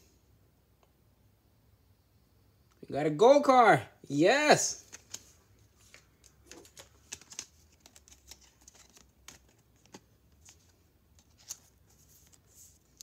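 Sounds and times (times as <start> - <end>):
trading cards clicking and rustling: 4.7 - 13.0.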